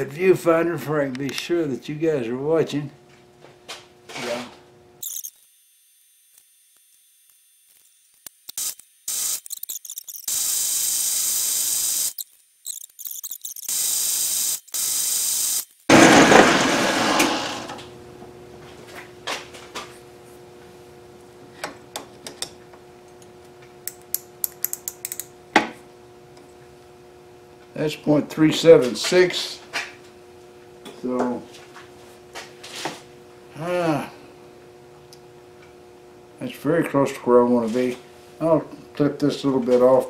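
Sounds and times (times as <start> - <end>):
tools clicking: 8.2 - 10.3, 12.1 - 13.8, 23.8 - 25.3
loud hissing: 13.7 - 17.8
lathe humming: 15.9 - 18.0.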